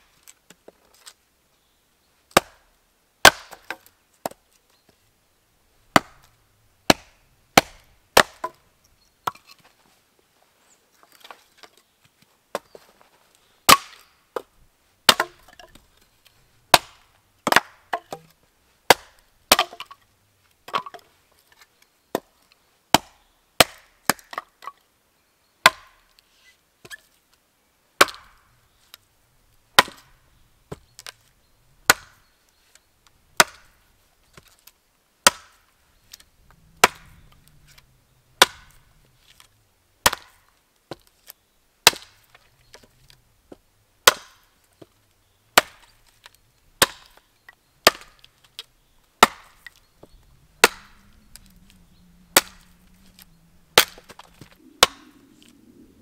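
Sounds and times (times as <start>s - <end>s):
axe chopping wood: 2.3s - 4.4s, 5.9s - 6.3s, 6.9s - 8.6s, 13.7s - 14.5s, 15.1s - 15.8s, 16.7s - 18.3s, 18.9s - 20.0s, 22.9s - 24.5s, 25.6s - 26.0s, 28.0s - 28.4s, 29.8s - 31.2s, 31.8s - 32.2s, 33.4s - 33.8s, 35.2s - 35.6s, 36.8s - 37.8s, 38.4s - 38.8s, 39.4s - 41.1s, 41.8s - 42.9s, 43.5s - 44.9s, 45.6s - 46.2s, 46.8s - 48.6s, 49.2s - 51.5s, 52.3s - 55.2s.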